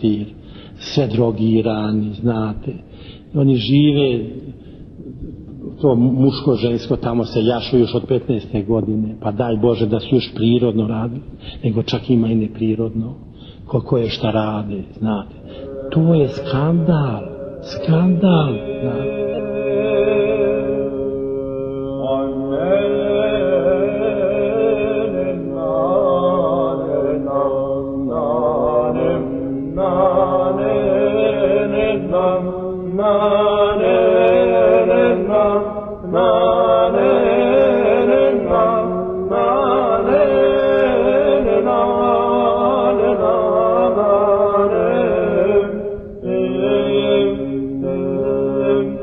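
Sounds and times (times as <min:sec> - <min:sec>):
voices chanting: 0:22.1 - 0:49.0.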